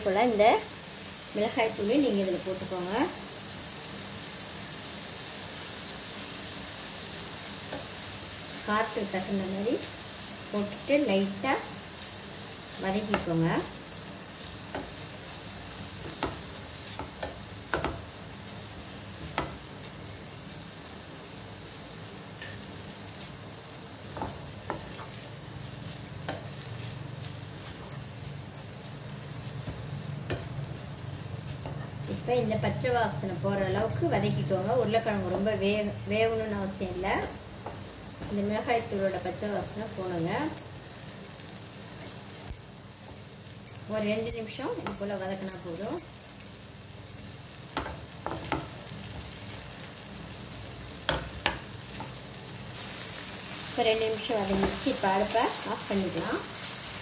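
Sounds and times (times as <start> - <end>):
potato sizzling in a frying pan: 0.0 - 57.0
spatula tapping on pan: 13.0 - 13.4, 16.0 - 18.1, 19.2 - 19.7, 42.0 - 52.2.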